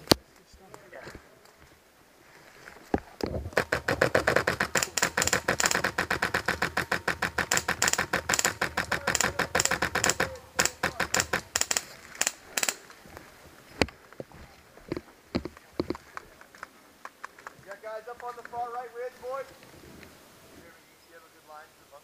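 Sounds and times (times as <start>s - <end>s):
airsoft rifle rapid fire: 3.5s - 12.8s.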